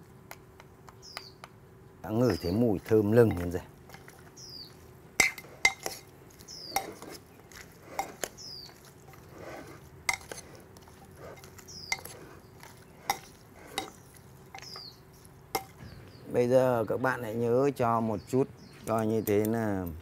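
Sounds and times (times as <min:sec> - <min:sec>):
wet mixing: 0:02.1 - 0:15.8
metal spoon clinking on clay pot: 0:05.2 - 0:06.1, 0:10.1 - 0:14.9, 0:15.5 - 0:15.8.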